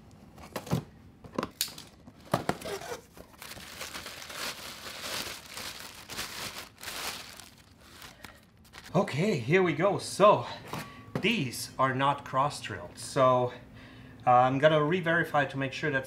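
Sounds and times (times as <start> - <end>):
plastic bag crinkling: 2.5 - 8.9.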